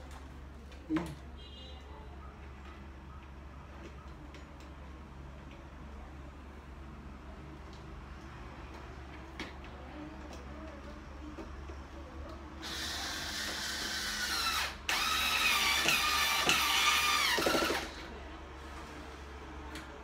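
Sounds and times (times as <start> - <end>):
electric drill motor whine: 12.6 - 18.0.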